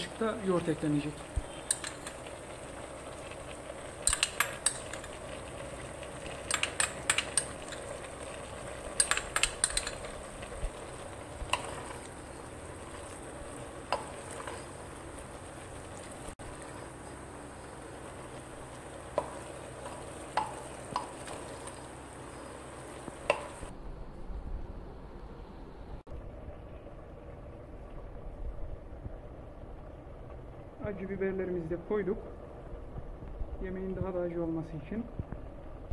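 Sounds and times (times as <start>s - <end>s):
faint sizzle: 0.0s - 35.9s
metal spoon clinking on bowl: 1.6s - 2.2s, 4.1s - 5.1s, 6.5s - 7.8s, 9.0s - 10.1s
spoon knocking in pot: 1.6s - 2.2s, 4.0s - 5.2s, 6.4s - 8.0s, 8.9s - 10.2s, 19.1s - 21.4s, 23.2s - 23.7s.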